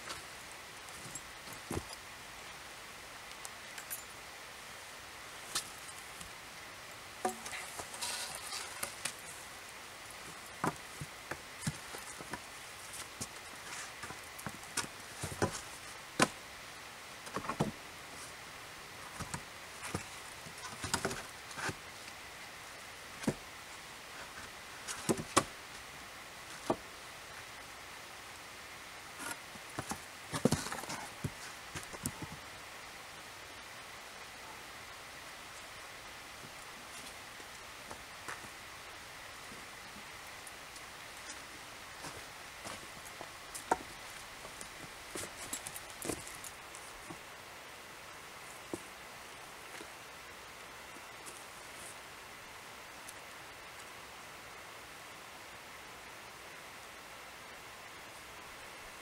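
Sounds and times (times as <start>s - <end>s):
outdoor hiss: 0.0s - 59.0s
wooden poles knocking: 7.2s - 8.3s
boots and clothing rustling: 7.2s - 16.4s, 40.8s - 47.3s.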